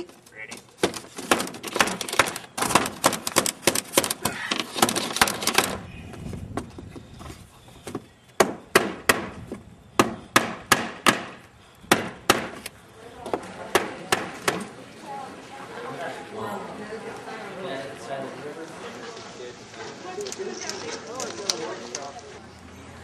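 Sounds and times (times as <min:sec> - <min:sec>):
sharp wooden knocking: 0:08.4 - 0:12.6.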